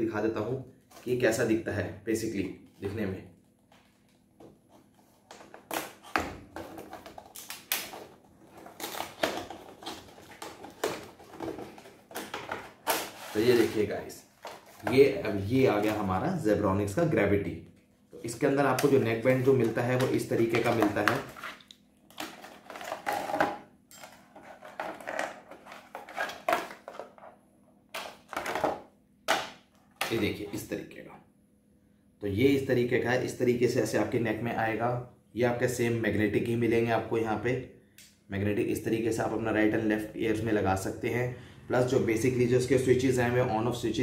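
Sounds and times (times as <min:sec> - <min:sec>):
packaging rustling and scraping: 0:03.9 - 0:15.1, 0:19.4 - 0:27.4.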